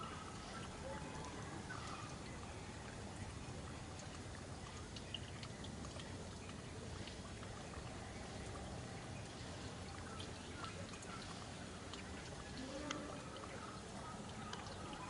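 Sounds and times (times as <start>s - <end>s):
faint clicks: 11.9s - 13.5s.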